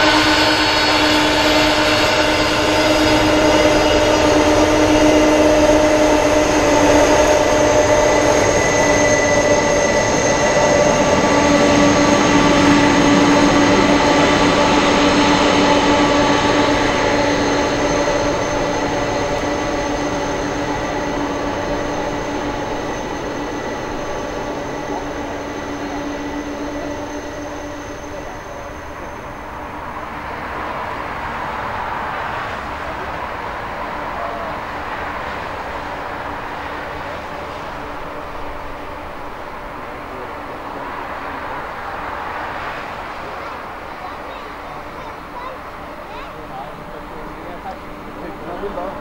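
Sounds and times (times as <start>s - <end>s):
jet engines whining while taxiing: 0.0s - 49.0s.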